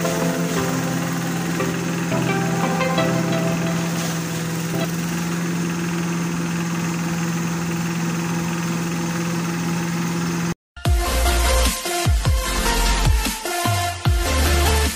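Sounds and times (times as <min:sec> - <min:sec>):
diesel engine running: 0:00.0 - 0:10.6.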